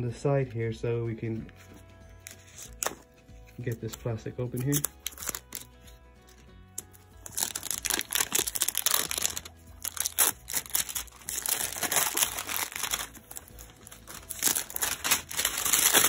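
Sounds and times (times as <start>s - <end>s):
plastic shrink wrap crinkling: 4.6s - 5.7s, 6.3s - 16.0s.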